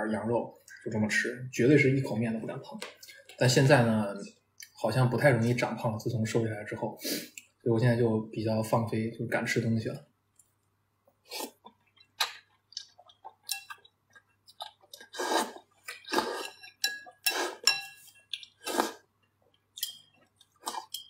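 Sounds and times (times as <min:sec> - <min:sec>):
person slurping noodles: 0:11.3 - 0:11.6, 0:15.0 - 0:16.6, 0:17.2 - 0:17.7, 0:18.6 - 0:19.1
person chewing: 0:11.3 - 0:21.0.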